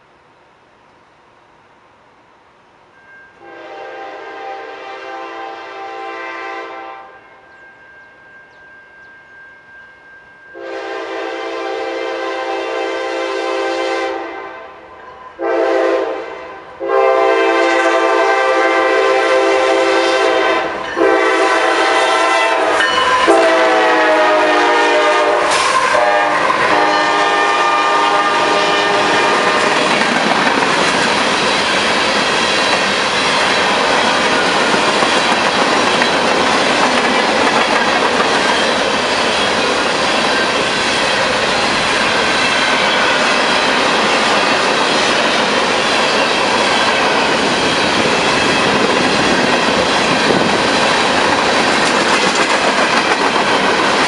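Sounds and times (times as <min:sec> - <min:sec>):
locomotive air horn blasts: 0:03.4 - 0:07.3, 0:10.6 - 0:29.8
train wheels clacking over rail joints: 0:28.6 - 0:54.0.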